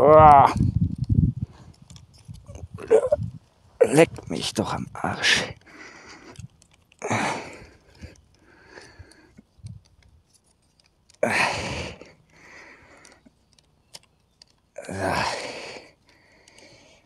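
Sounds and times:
wooden sticks scraping and creaking: 0.0s - 17.0s
wood clicks: 5.6s - 11.2s, 12.0s - 14.7s, 16.0s - 17.0s.

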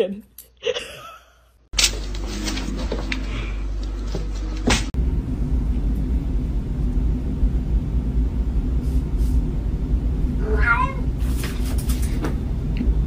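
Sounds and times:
low background rumble: 4.9s - 11.4s
cat meowing: 10.4s - 11.2s.

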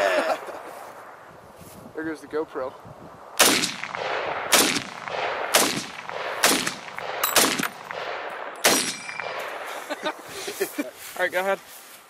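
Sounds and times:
rifle shots: 3.4s - 10.0s.

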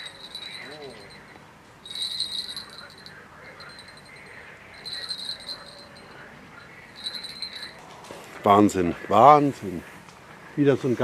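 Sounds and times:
fishing rod bell jingling: 0.0s - 6.3s, 6.9s - 7.8s.

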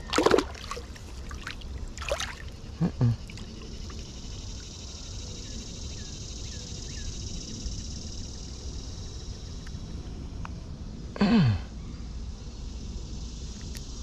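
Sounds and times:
insects chorus: 0.0s - 14.0s.

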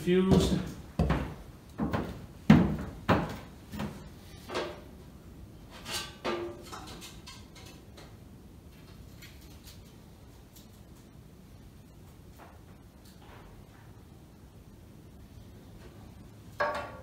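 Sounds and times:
footsteps on wooden floor: 0.2s - 4.1s.

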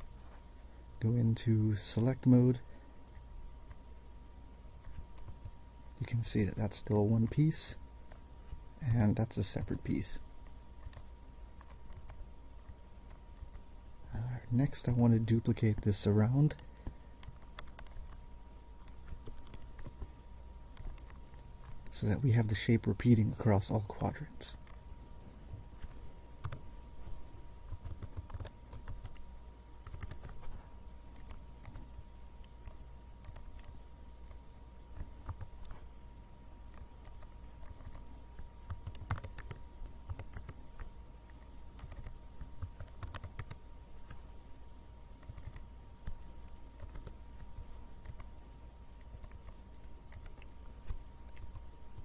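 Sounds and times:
faint steady hum: 0.0s - 52.0s
computer keyboard typing: 10.4s - 13.6s, 14.9s - 18.2s, 18.8s - 20.1s, 20.7s - 22.0s, 26.4s - 26.6s, 27.7s - 29.2s, 29.8s - 30.4s, 31.1s - 31.9s, 32.6s - 34.4s, 35.0s - 35.8s, 36.7s - 44.2s, 45.2s - 48.3s, 49.0s - 52.0s
mouse clicking: 10.4s - 13.6s, 16.5s - 18.2s, 18.8s - 20.1s, 20.7s - 21.9s, 27.7s - 29.2s, 29.8s - 30.4s, 31.1s - 34.4s, 36.7s - 44.2s, 45.2s - 48.3s, 49.0s - 52.0s.

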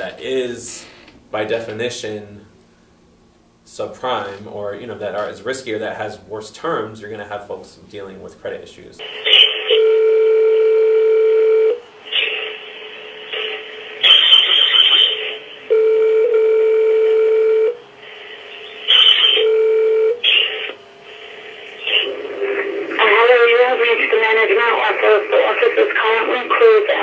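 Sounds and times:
telephone ringback tone: 9.7s - 11.8s, 15.7s - 17.8s, 18.9s - 20.4s
phone line crackle: 18.8s - 20.7s.

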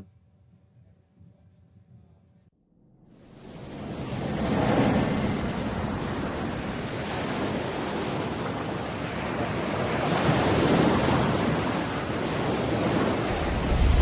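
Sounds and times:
ocean waves rushing: 3.1s - 14.0s.

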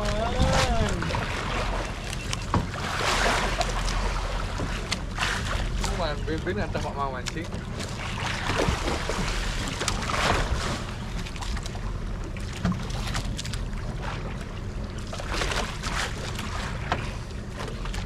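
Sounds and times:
wind buffeting microphone: 0.0s - 2.0s
boat motor hum: 0.0s - 18.0s
water splashing: 0.0s - 18.0s.

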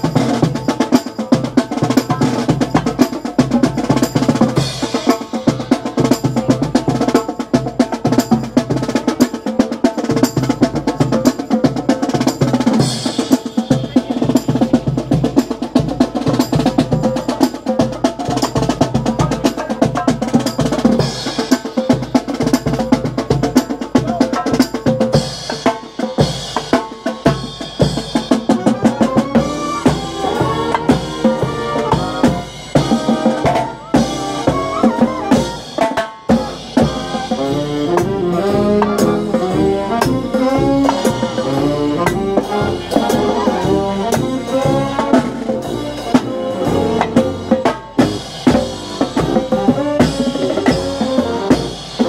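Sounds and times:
snare and bass drums marching: 0.0s - 52.0s
brass playing: 28.3s - 52.0s.

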